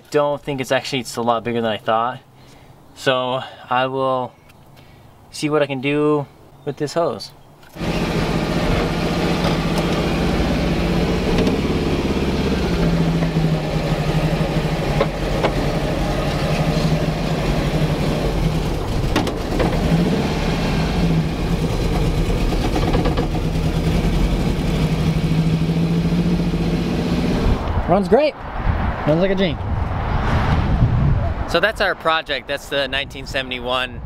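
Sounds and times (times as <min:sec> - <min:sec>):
car engine droning: 0:07.8 - 0:27.9.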